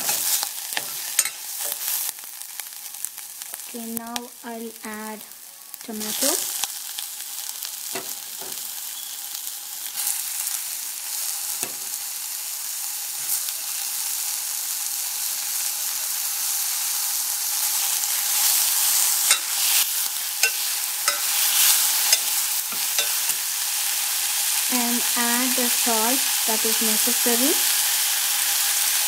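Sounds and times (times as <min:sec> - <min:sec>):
ladle clinking and scraping pot: 0:00.0 - 0:01.8, 0:19.3 - 0:19.6, 0:20.4 - 0:23.4
vegetables sizzling in hot oil: 0:00.0 - 0:29.0.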